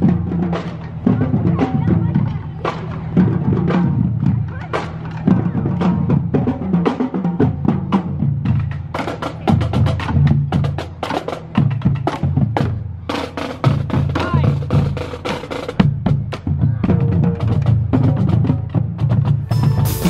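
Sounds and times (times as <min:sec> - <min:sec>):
rapid snare drum strokes: 0:17.1 - 0:20.0
bass drum beats: 0:19.0 - 0:20.0.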